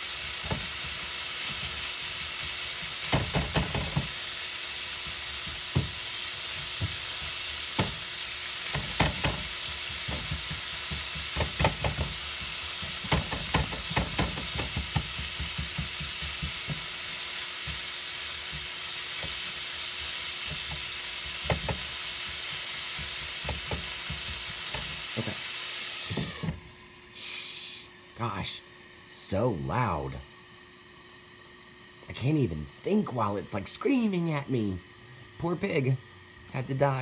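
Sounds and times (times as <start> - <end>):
meat sizzling in a skillet: 0.0 - 26.5
spatula knocking and scraping pan: 0.2 - 4.2, 5.0 - 25.0.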